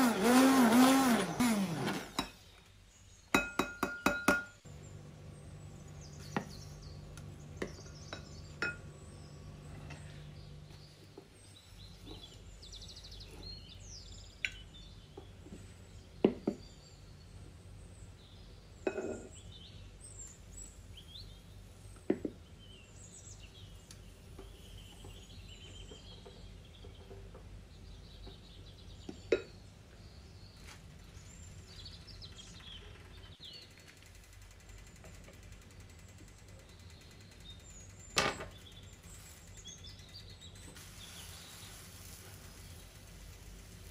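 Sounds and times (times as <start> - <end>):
low steady hum: 1.2 - 43.9
kitchenware clinking and knocking: 3.4 - 4.6
small birds chirping: 4.6 - 43.9.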